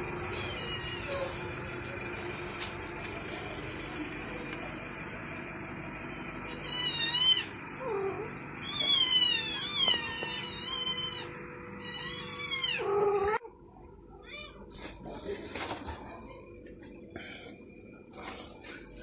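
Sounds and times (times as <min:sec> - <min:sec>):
faint steady hum: 0:00.0 - 0:19.0
kittens mewing: 0:06.5 - 0:13.5.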